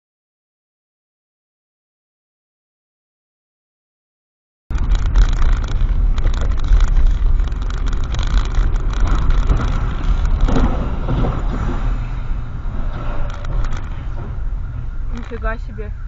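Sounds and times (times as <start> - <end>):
car driving on wet road: 4.7 - 16.0.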